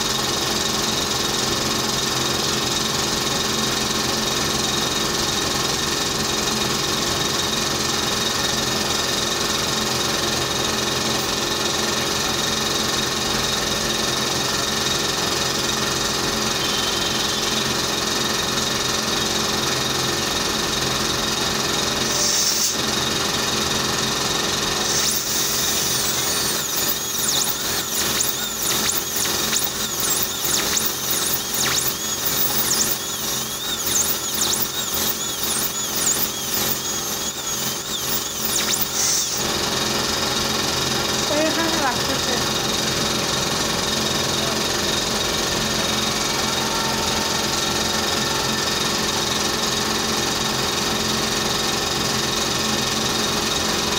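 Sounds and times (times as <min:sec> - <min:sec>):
dental drill whining: 0:13.3 - 0:18.8, 0:20.5 - 0:43.4, 0:44.1 - 0:51.3
hiss: 0:22.1 - 0:22.8, 0:24.8 - 0:39.4.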